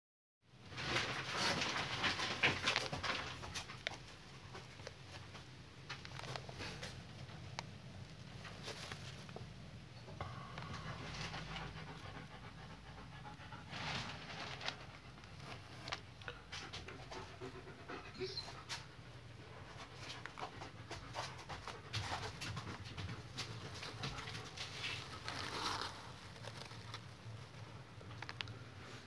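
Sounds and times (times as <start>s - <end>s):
dog panting: 10.2s - 26.2s.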